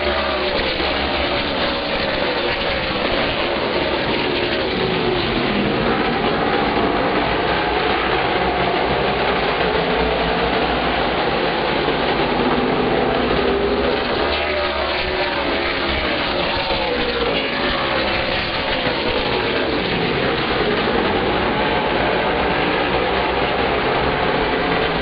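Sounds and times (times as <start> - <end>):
race car engines at full throttle: 0.0 - 25.0.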